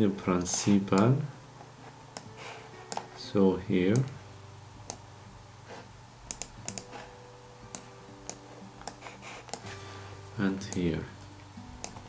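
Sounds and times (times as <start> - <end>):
low steady hum: 0.0 - 12.0
keyboard and mouse clicks: 6.2 - 7.0, 7.7 - 9.7, 11.8 - 12.0.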